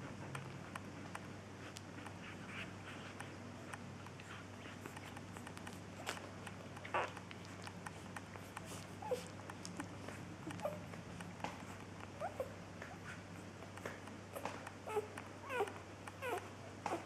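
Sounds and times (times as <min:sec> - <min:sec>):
puppies suckling: 0:00.0 - 0:17.0
puppy squeaks: 0:14.9 - 0:17.0.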